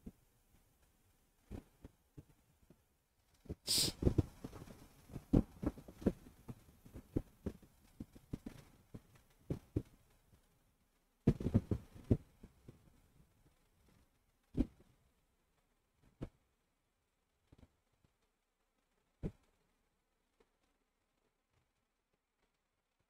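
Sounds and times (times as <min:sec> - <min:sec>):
short hiss: 0:03.7 - 0:04.1.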